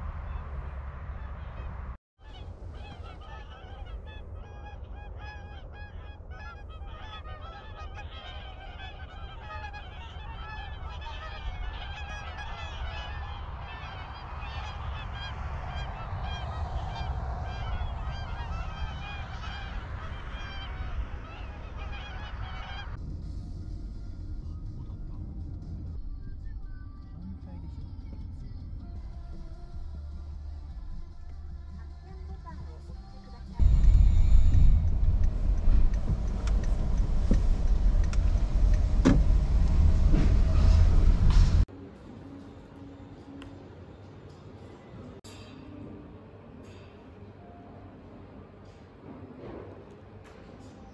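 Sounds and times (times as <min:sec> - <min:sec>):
swans honking: 0:00.0 - 0:23.0, 0:31.8 - 0:41.7
steady low rumble: 0:00.0 - 0:41.7.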